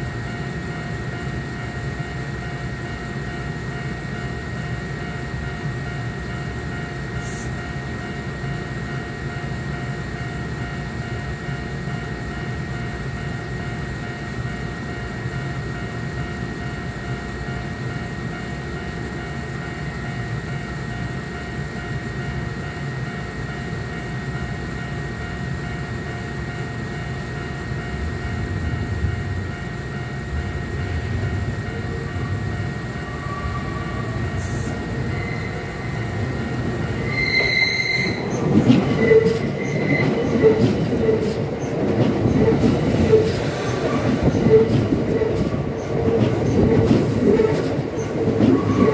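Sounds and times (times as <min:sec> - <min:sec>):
electric train passing: 0:00.0 - 0:48.9
low railway rumble and hum: 0:00.0 - 0:48.9
high wheel squeal: 0:33.0 - 0:36.3, 0:37.0 - 0:41.4, 0:42.3 - 0:48.9.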